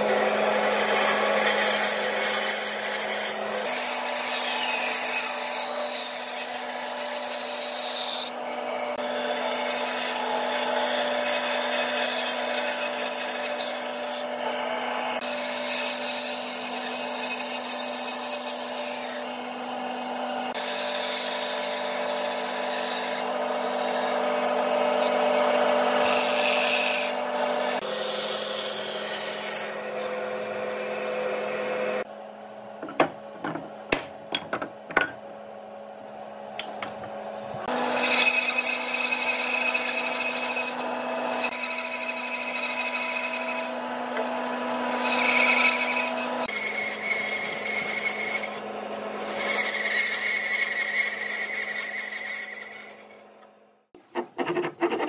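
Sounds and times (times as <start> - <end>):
saw rasping through wood: 0.0 - 32.1, 37.6 - 55.0
band saw motor hum: 0.0 - 53.6
wooden pieces knocking on table: 32.8 - 35.2.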